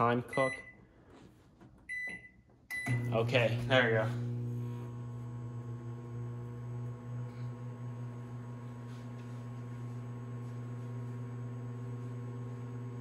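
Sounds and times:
microwave oven humming: 0:02.7 - 0:13.0.

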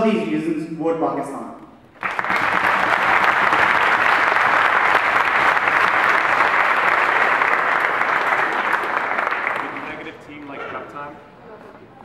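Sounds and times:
audience applauding: 0:02.0 - 0:10.8.

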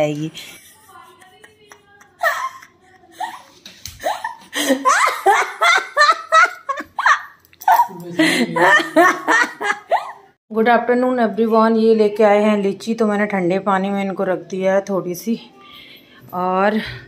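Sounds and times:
person laughing: 0:00.4 - 0:10.3.

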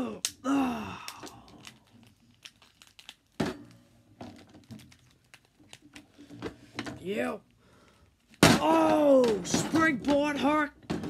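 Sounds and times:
groan-like vocal sound: 0:00.0 - 0:01.9.

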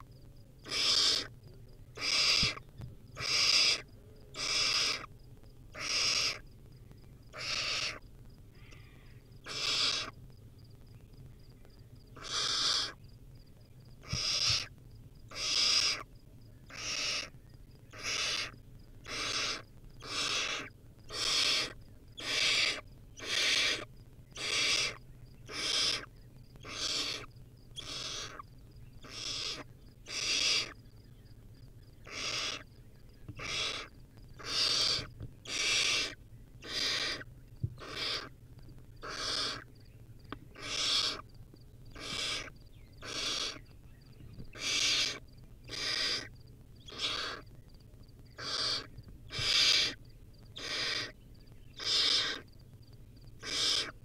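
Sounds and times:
owl chick hissing begging calls: 0:00.6 - 0:01.3, 0:02.0 - 0:02.6, 0:03.2 - 0:05.1, 0:05.7 - 0:06.4, 0:07.3 - 0:08.0, 0:08.6 - 0:10.2, 0:12.2 - 0:13.0, 0:14.0 - 0:14.7, 0:15.3 - 0:16.1, 0:16.7 - 0:17.3, 0:17.9 - 0:28.4, 0:29.0 - 0:30.8, 0:32.0 - 0:32.7, 0:33.4 - 0:38.4, 0:39.0 - 0:39.7, 0:40.5 - 0:41.3, 0:41.9 - 0:43.7, 0:44.5 - 0:47.6, 0:48.4 - 0:52.5, 0:53.4 - 0:54.0.

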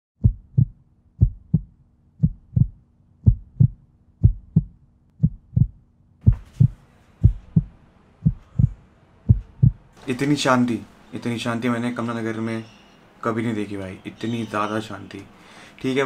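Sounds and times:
heartbeat double thump: 0:00.2 - 0:09.9
faint steady hum: 0:00.2 - 0:16.0
faint room noise hiss: 0:05.8 - 0:16.0.

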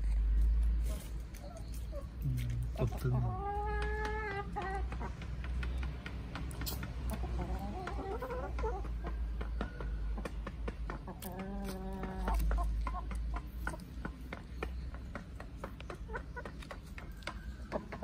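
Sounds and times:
pecking and scratching in leaves: 0:00.0 - 0:04.9, 0:11.0 - 0:14.8
chickens clucking: 0:00.7 - 0:18.0.

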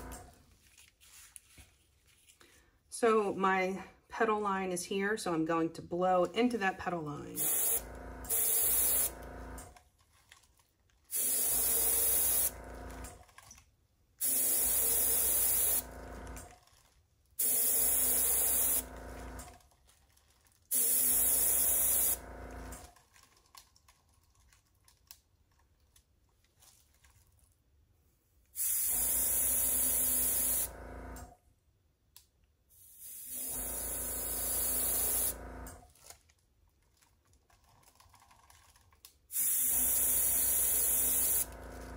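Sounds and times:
hissing air nozzle blasts: 0:07.4 - 0:09.1.

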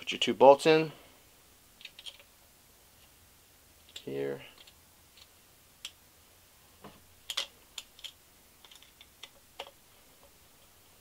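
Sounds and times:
plastic parts clicking and tapping: 0:01.8 - 0:02.3, 0:03.9 - 0:06.0, 0:07.2 - 0:10.4.

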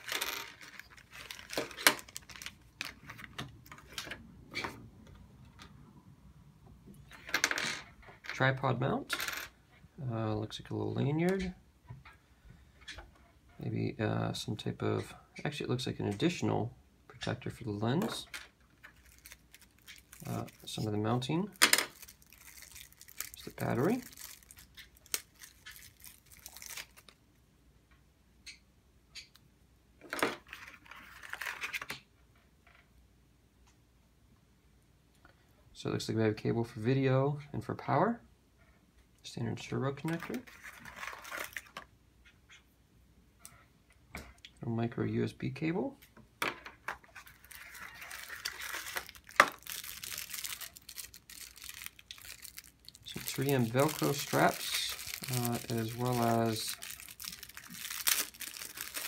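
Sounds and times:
wrapping crinkling and tearing: 0:00.0 - 0:04.0, 0:18.8 - 0:27.2, 0:30.5 - 0:31.8, 0:40.0 - 0:41.8, 0:47.0 - 0:59.0.

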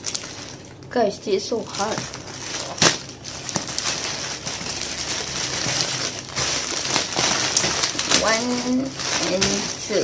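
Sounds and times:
plastic packaging crinkling: 0:00.0 - 0:00.9, 0:01.5 - 0:10.0.

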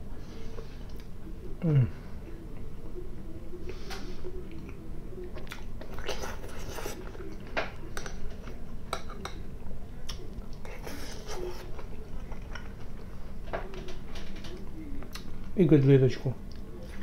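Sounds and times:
chewing food: 0:04.4 - 0:15.5.

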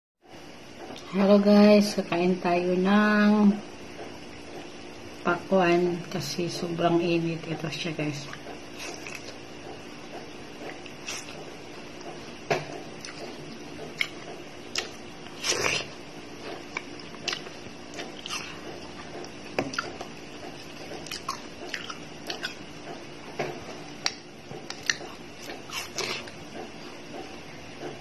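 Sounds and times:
person chewing watermelon: 0:08.3 - 0:23.0, 0:23.6 - 0:27.4.

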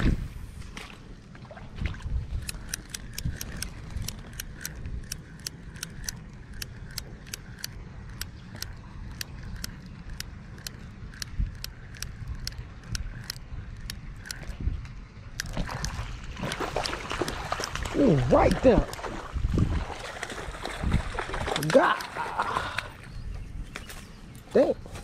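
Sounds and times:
low wind rumble on microphone: 0:00.0 - 0:25.0
fishing reel ticking: 0:02.4 - 0:14.6.

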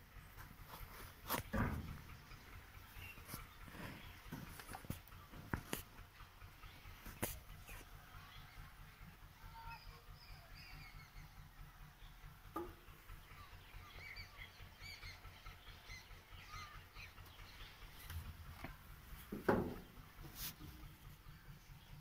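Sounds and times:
birds chirping: 0:00.0 - 0:22.0
thump: 0:01.5 - 0:02.0, 0:19.3 - 0:19.8.

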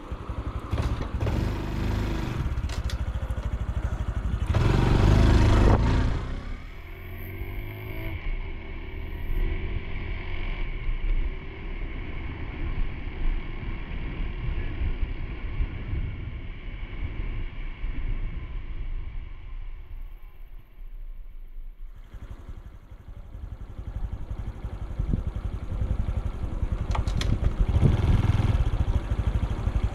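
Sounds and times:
motorcycle engine running: 0:00.0 - 0:12.5, 0:21.9 - 0:29.9.

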